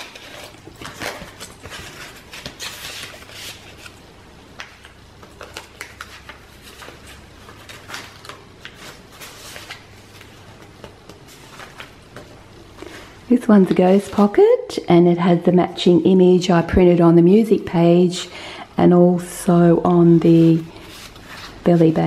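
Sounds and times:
paper rustling: 0.0 - 4.0, 4.6 - 14.3, 20.0 - 22.0.

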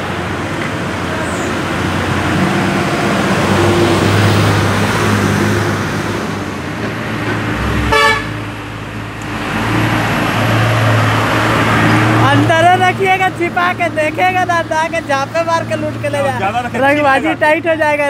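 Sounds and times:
traffic noise: 0.0 - 18.0
car horn toot: 7.8 - 8.4.

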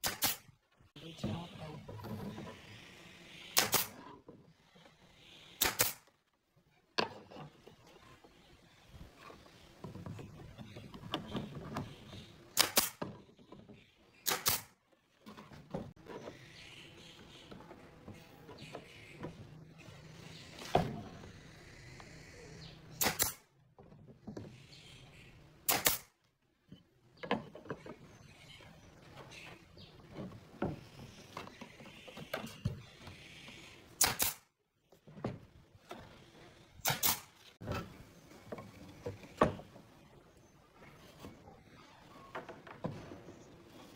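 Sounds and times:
pneumatic nailer firing: 0.0 - 0.5, 3.5 - 4.0, 5.6 - 6.1, 12.5 - 13.0, 14.2 - 14.8, 23.0 - 23.4, 25.6 - 26.1, 34.0 - 34.5, 36.8 - 37.4.

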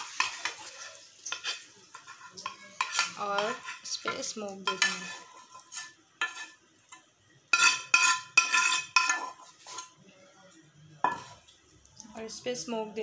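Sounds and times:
spoon scraping a frying pan: 0.0 - 10.0, 11.0 - 11.5.

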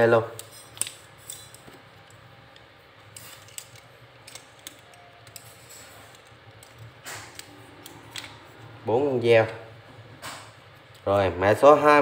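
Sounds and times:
metal knives clicking and tapping: 0.2 - 8.3.

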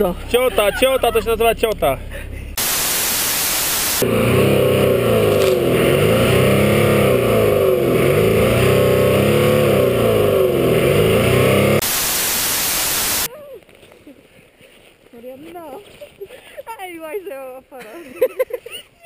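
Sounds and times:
static hiss: 2.6 - 4.1, 11.8 - 13.3
engine revving: 2.6 - 13.3
wheel spinning in snow: 2.6 - 13.3.

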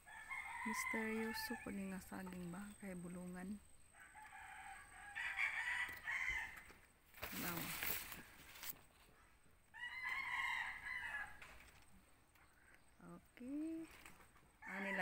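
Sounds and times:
rooster crowing: 0.0 - 1.7, 4.0 - 6.7, 9.7 - 11.5, 14.6 - 15.0.

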